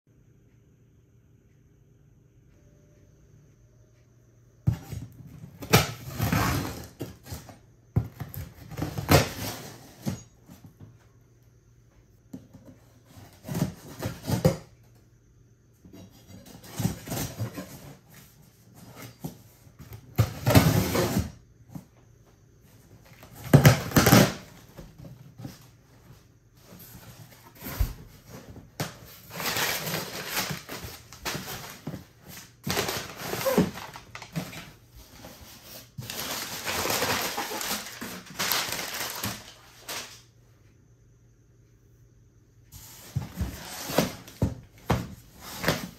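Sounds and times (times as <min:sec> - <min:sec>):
crumpled paper rustling: 0:28.9 - 0:40.2.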